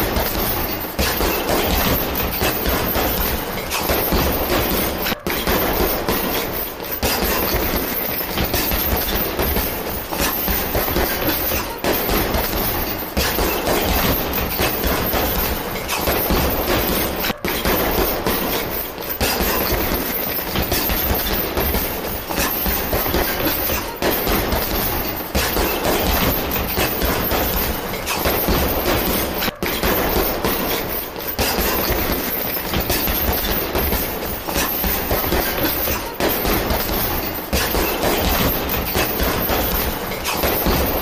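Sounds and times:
gloved punches hitting heavy bag: 0.0s - 41.0s.

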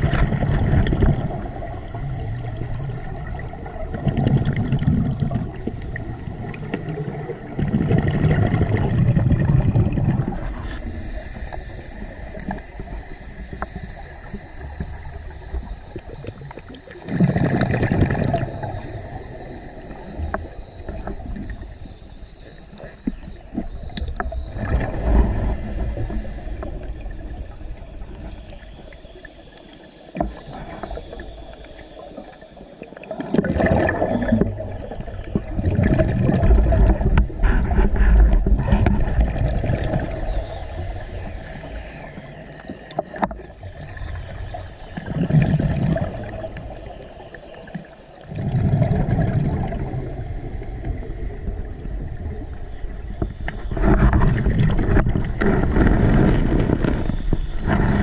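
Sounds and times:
exhaled bubbles rumbling: 0.0s - 58.0s
regulator inhale hiss: 1.2s - 3.4s, 5.4s - 7.5s, 10.3s - 16.8s, 18.6s - 23.3s, 24.1s - 27.6s, 36.8s - 38.8s, 40.0s - 43.3s, 49.6s - 52.1s, 55.2s - 57.5s.

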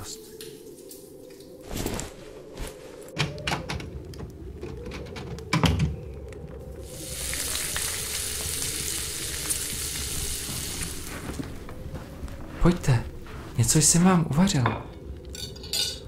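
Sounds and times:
food sizzling in a pan: 6.8s - 11.3s.

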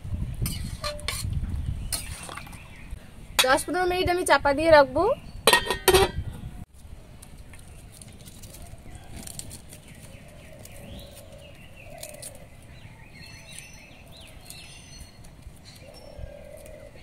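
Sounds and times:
birds chirping: 1.6s - 4.4s, 8.6s - 17.0s.

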